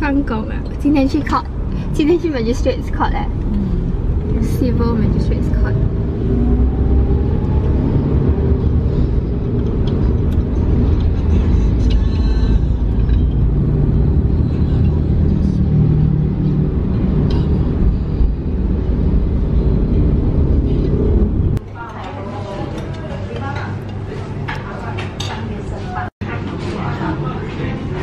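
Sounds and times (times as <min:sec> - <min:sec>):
car engine and road rumble: 0:00.0 - 0:21.6.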